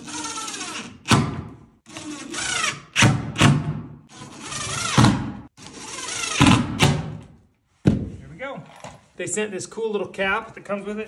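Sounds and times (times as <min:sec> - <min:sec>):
cordless drill driving screws: 0:00.0 - 0:01.2, 0:01.9 - 0:03.1, 0:04.1 - 0:06.9.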